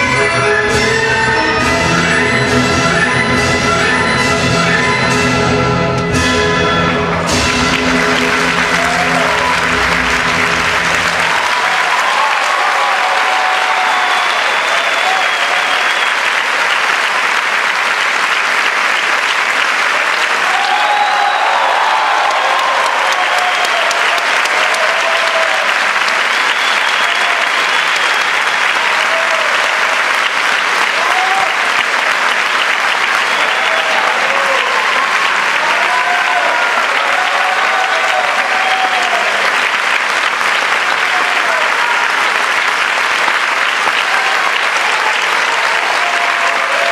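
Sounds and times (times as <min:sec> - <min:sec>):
audience applauding: 0:06.4 - 0:46.9
drawn-out cheers: 0:08.2 - 0:16.4, 0:20.4 - 0:30.1, 0:30.8 - 0:31.8, 0:32.9 - 0:39.7, 0:40.6 - 0:42.5, 0:43.8 - 0:46.9.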